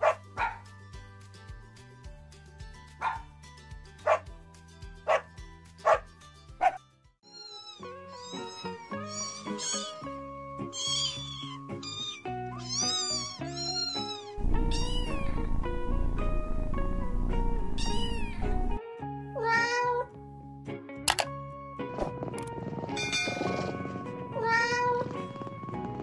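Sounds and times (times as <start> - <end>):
dog barking: 0.0 - 0.7, 3.0 - 3.3, 4.0 - 4.3, 5.0 - 6.8
light background music: 0.0 - 26.0
kitten mewing: 7.4 - 10.1, 10.7 - 15.4, 17.8 - 18.5.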